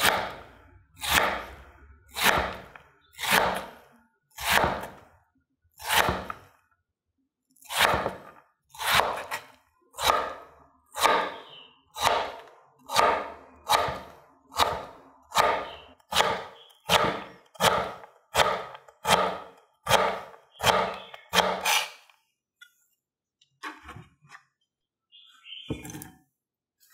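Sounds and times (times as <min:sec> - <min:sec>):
knife chopping on wooden board: 0:01.0 - 0:01.5, 0:02.2 - 0:03.7, 0:04.4 - 0:05.0, 0:05.8 - 0:06.4, 0:07.7 - 0:10.4, 0:11.0 - 0:11.4, 0:12.0 - 0:22.0.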